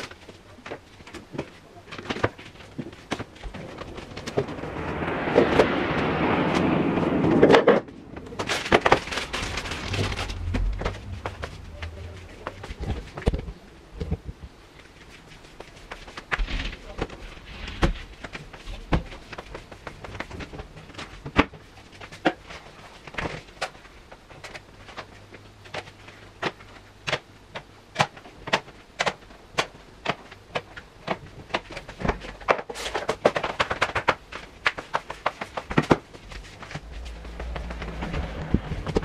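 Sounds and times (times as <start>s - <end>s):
footsteps on tiled floor: 0.0s - 5.1s, 34.3s - 39.0s
faint steady hum: 0.0s - 39.0s.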